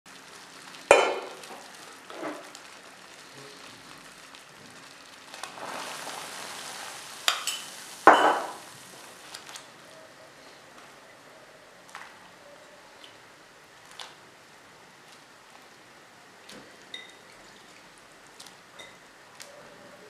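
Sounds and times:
boiling water foaming and hissing: 0.1 - 20.0
water boiling in a pot: 0.1 - 20.0
kitchenware knocking: 8.1 - 8.6.

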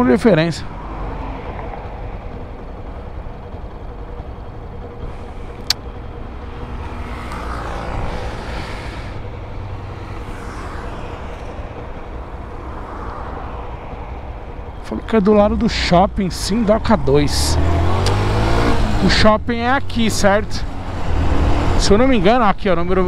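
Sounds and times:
vehicle passing: 0.0 - 22.4
low traffic engine rumble: 0.0 - 23.0
sharp click: 18.0 - 18.2.

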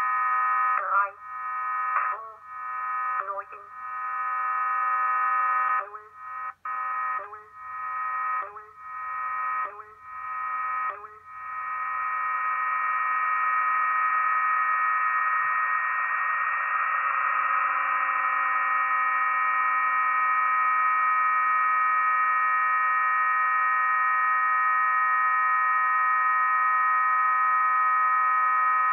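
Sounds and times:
radio hiss: 0.0 - 5.0
chord of pure radio tones: 0.0 - 28.9.

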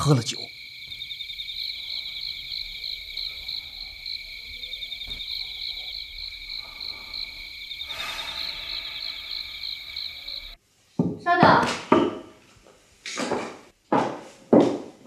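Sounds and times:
crickets chirping: 0.0 - 10.6.

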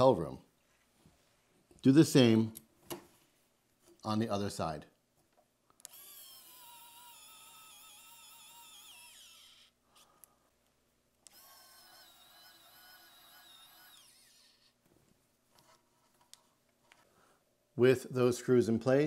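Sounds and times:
electric screwdriver motor whining: 5.8 - 9.8, 11.2 - 14.8.

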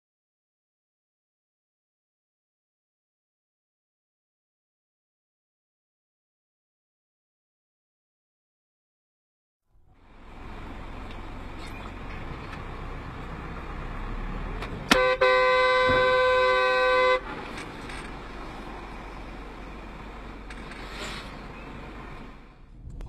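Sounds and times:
car rumble on road: 9.7 - 23.0
car horn: 14.8 - 18.1.

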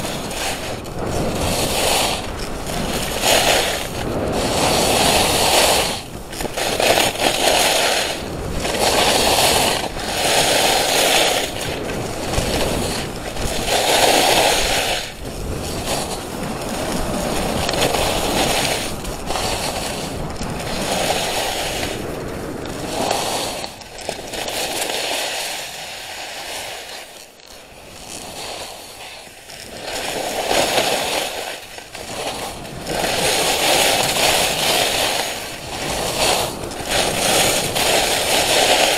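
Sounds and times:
skis scraping across snow: 0.0 - 38.9.

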